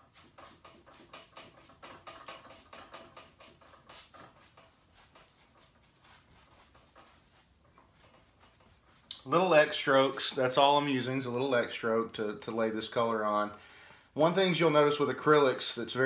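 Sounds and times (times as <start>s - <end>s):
paintbrush scratching on canvas: 0.0s - 10.4s.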